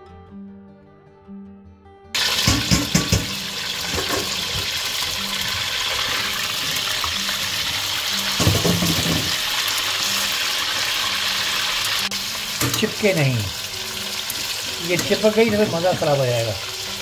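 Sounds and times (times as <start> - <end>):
chicken sizzling in hot oil: 2.2 - 17.0
metal spoon knocking a pan: 2.3 - 4.7, 8.4 - 9.4, 12.6 - 12.9.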